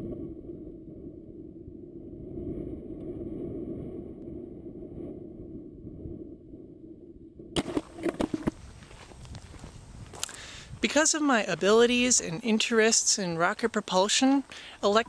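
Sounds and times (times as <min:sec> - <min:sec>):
camera knocking on ground: 0:07.6 - 0:10.4.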